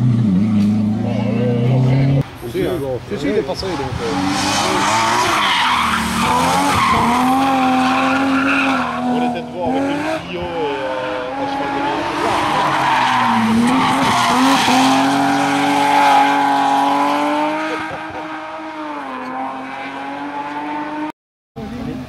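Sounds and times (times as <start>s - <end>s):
rally car engine at high revs: 3.9s - 21.1s.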